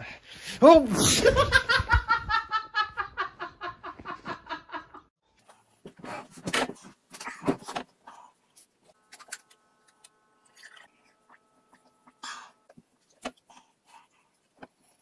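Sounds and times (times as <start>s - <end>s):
person laughing: 0.8s - 5.1s.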